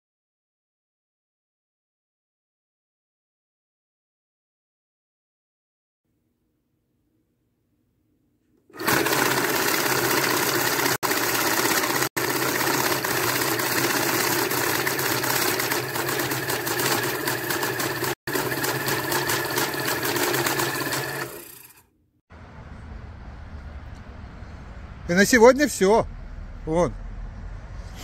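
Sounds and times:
banknote counting machine: 0:08.8 - 0:21.8.

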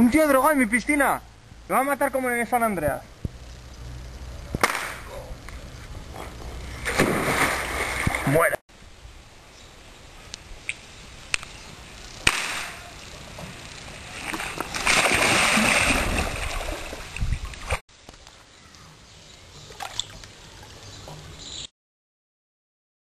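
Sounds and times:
pool water splashing: 0:06.8 - 0:08.5, 0:12.8 - 0:17.8.

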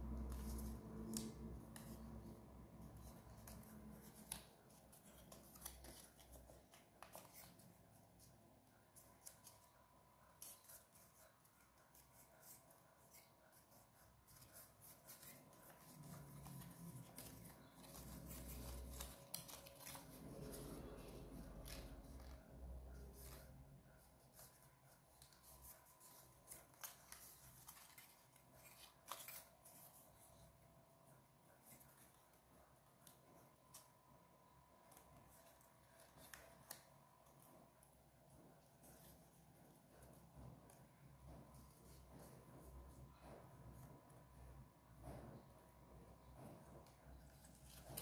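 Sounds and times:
paper strips crinkling: 0:00.1 - 0:30.6, 0:34.8 - 0:40.8.

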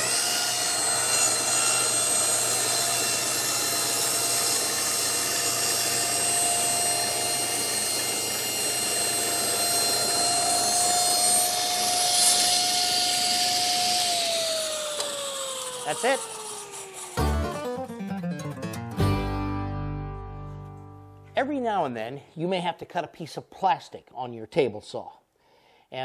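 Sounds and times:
saw blade spinning down: 0:00.0 - 0:17.6
table saw cutting wood: 0:00.0 - 0:18.0.

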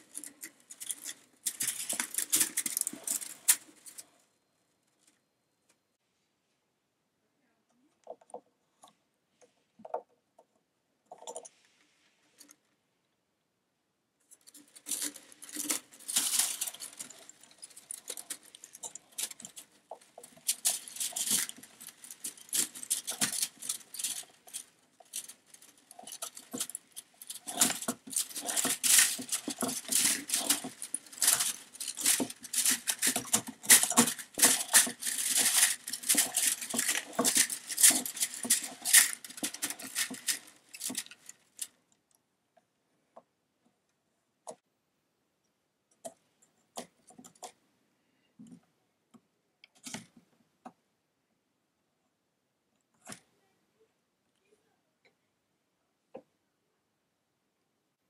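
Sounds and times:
fingers clicking and rattling on clamp: 0:00.0 - 0:04.1, 0:14.3 - 0:41.8.

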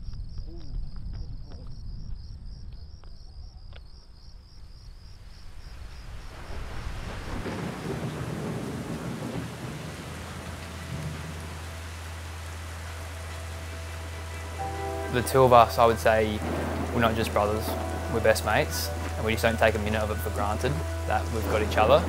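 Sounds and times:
crickets chirping: 0:00.0 - 0:22.0
thunder rumbling: 0:05.6 - 0:22.0
rain downpour: 0:05.7 - 0:22.0
low steady drone: 0:09.9 - 0:22.0.

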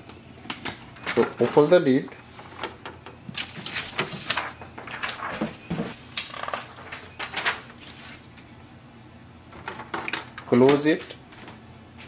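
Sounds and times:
paper rustling: 0:03.3 - 0:09.9.

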